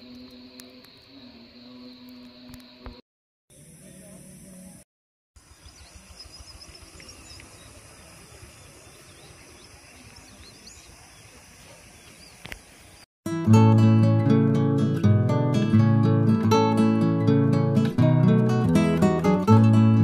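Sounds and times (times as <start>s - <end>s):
small birds chirping: 5.4s - 13.1s.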